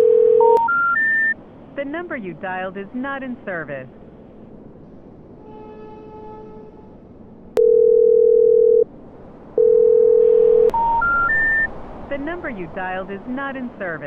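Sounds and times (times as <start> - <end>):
telephone line click: 0.0 - 1.0, 7.6 - 8.8
steady telephone tones: 0.0 - 1.4, 7.6 - 8.9, 9.6 - 11.7
rising three-note phone tone: 7.6 - 8.8, 9.6 - 11.7.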